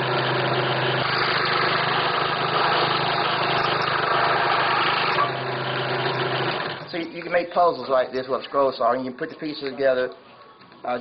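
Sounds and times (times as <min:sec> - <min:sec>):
scroll saw cutting wood: 0:00.0 - 0:06.9.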